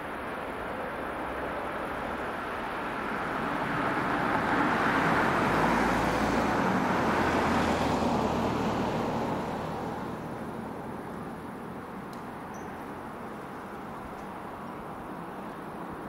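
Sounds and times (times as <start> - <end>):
vehicle passing by: 2.0 - 11.9.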